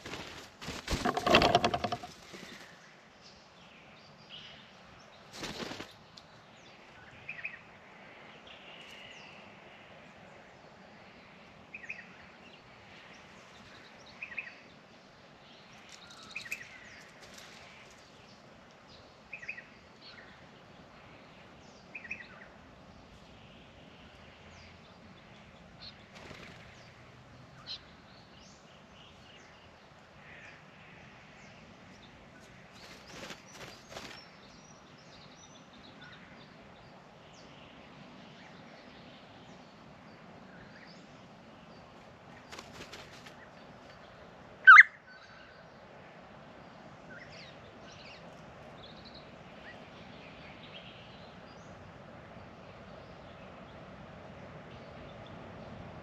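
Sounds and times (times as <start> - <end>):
wings flapping and splashing: 0.0 - 2.7, 5.3 - 6.1, 26.1 - 26.8, 32.7 - 34.4, 42.3 - 43.5
birds chirping: 0.0 - 9.6, 10.8 - 55.8.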